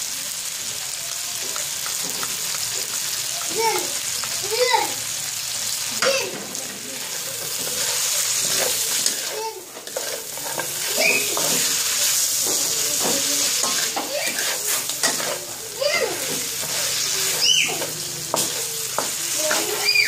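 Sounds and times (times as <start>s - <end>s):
pork sizzling in a wok: 0.0s - 20.0s
wooden spatula scraping and knocking: 7.1s - 15.5s.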